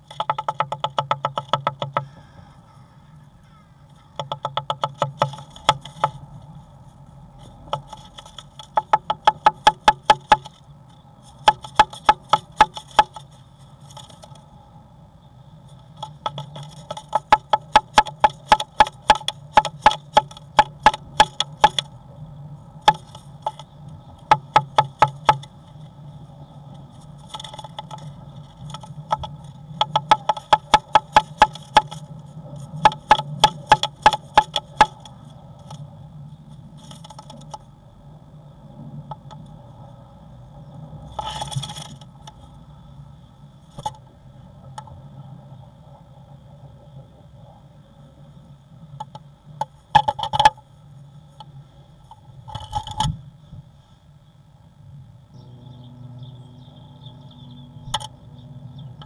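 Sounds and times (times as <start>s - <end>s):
bird tapping on wooden nest box: 0.0s - 2.6s, 3.5s - 14.5s, 15.7s - 35.9s, 36.5s - 37.7s, 39.0s - 39.5s, 41.0s - 42.5s, 43.7s - 44.1s, 48.9s - 50.7s, 52.1s - 53.2s, 57.7s - 58.2s
steady low hum: 0.0s - 59.0s.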